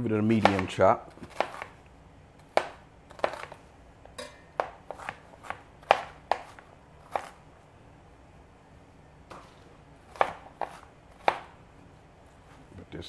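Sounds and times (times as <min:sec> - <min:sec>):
knife chopping on cutting board: 0:00.3 - 0:01.8, 0:02.4 - 0:03.6, 0:04.6 - 0:07.4, 0:09.3 - 0:11.6.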